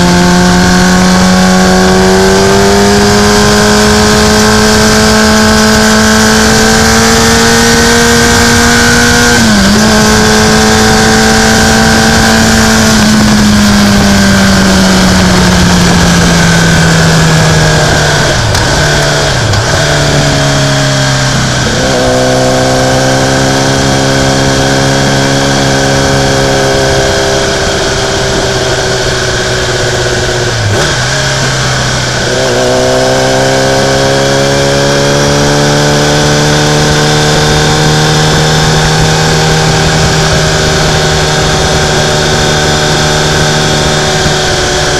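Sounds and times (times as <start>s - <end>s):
vehicle engine running: 0.0s - 35.7s
wind on microphone: 0.0s - 44.9s.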